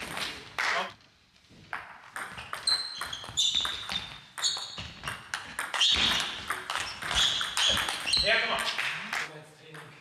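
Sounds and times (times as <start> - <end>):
shoes squeaking on floor: 2.3 - 8.8.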